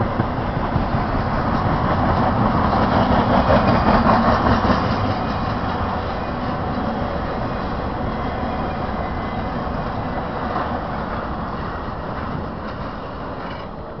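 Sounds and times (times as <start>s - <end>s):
freight train wheels on track: 0.0s - 14.0s.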